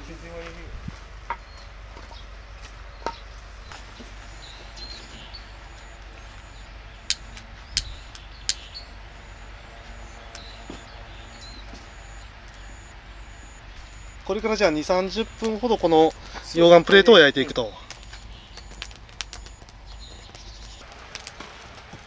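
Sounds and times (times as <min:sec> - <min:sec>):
lighter clicks: 0:07.1 - 0:08.8
firewood knocking: 0:16.2 - 0:22.0.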